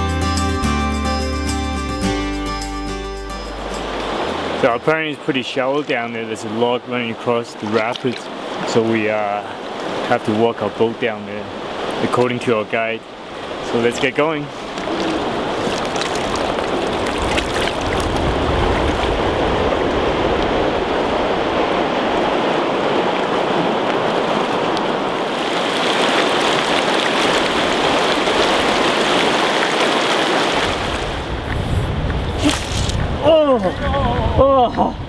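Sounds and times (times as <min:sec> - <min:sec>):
river rapids rushing over rocks: 0:20.9 - 0:31.1.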